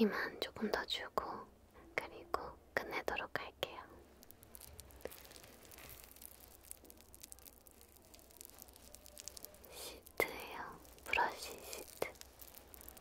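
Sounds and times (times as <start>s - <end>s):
plastic sheet rustling and crinkling: 4.1s - 13.0s.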